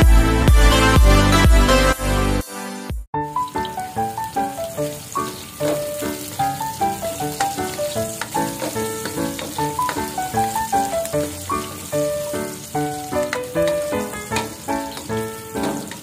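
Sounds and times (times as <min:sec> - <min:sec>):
background music: 0:00.0 - 0:16.0
onions sizzling in pot: 0:03.2 - 0:16.0
spatula stirring: 0:05.4 - 0:16.0.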